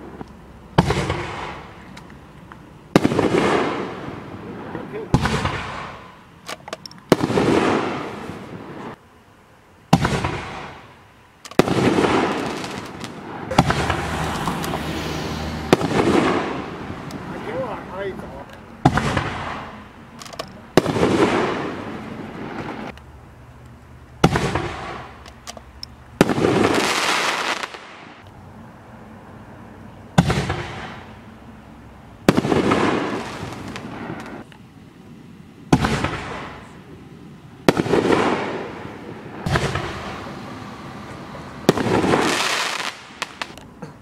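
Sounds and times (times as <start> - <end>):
fireworks shell reports: 4.4 - 6.1, 13.5 - 14.1, 15.7 - 19.8.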